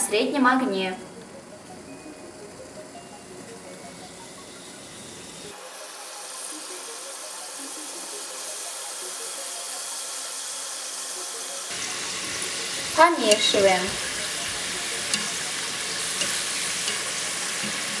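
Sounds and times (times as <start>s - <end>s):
dough sizzling in hot oil: 4.0s - 18.0s.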